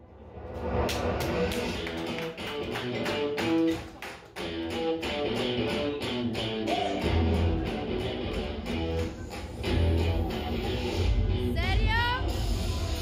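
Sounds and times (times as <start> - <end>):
guitar-led music over loudspeakers: 4.4 - 12.3
heavy bass: 4.5 - 13.0.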